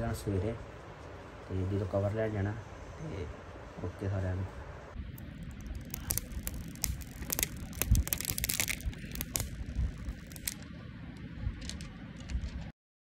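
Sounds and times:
low rumble of handling: 5.0 - 12.7
plastic film crinkling: 5.2 - 10.6.

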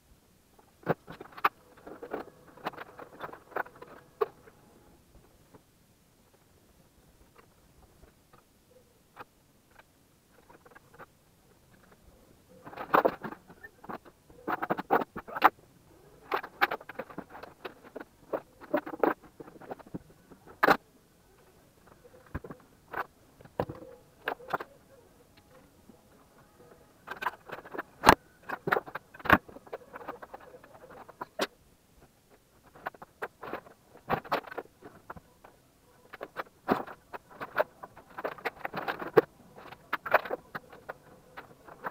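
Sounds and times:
cables and plugs rattling: 0.8 - 4.6, 12.6 - 20.8, 27.0 - 41.9.

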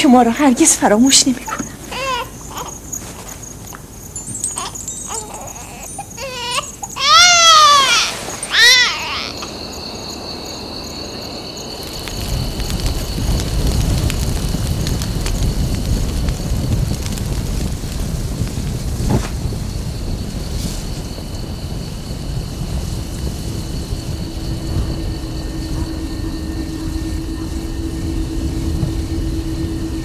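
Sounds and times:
night insects chirring: 0.0 - 30.0
young child crying: 4.6 - 9.4
low rumbling noise: 7.9 - 30.0.

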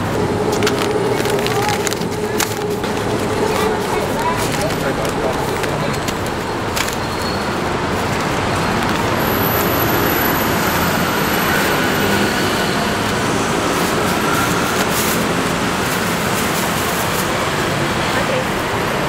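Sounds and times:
passing vehicles rumbling: 0.0 - 19.0.

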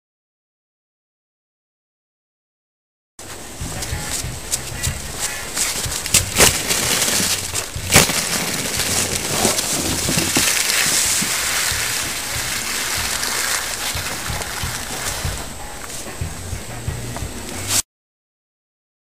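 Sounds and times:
sled sliding over snow: 3.2 - 16.4
sled thumping on snow: 3.2 - 17.8.

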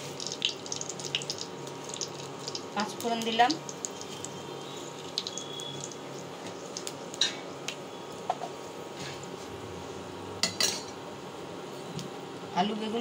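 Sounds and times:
seeds frying in hot oil: 0.0 - 13.0.

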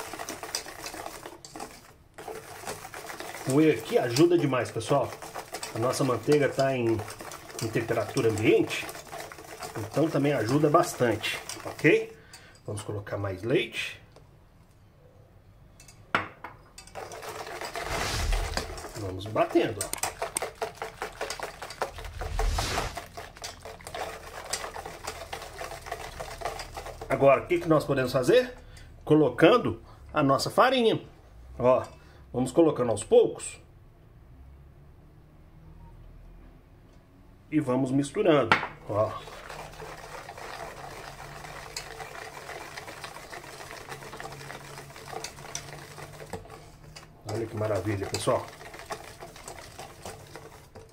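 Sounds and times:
whisk beating batter in metal bowl: 0.0 - 13.2, 16.8 - 28.6, 38.8 - 50.9.

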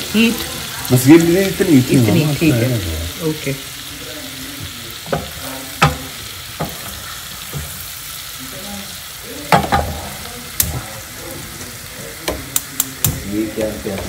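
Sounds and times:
garlic sizzling in a pan: 0.0 - 14.0
utensil knocking against pan: 5.1 - 6.8, 9.5 - 10.0.

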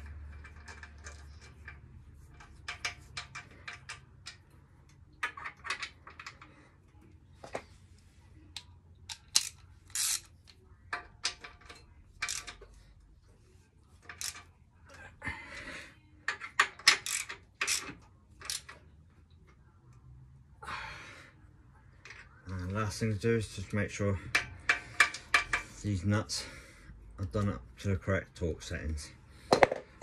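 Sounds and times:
socket ratchet clicking: 9.1 - 10.3, 16.8 - 18.7.

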